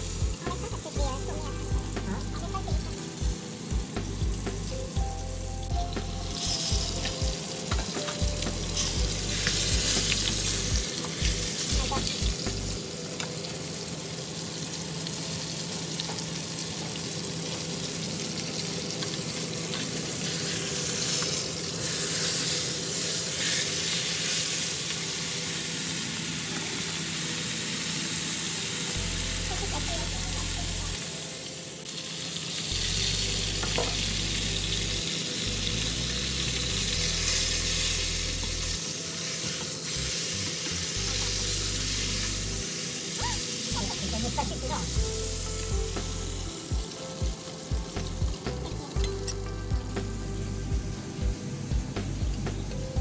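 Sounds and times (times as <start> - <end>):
fish frying in hot oil: 0.0 - 52.0.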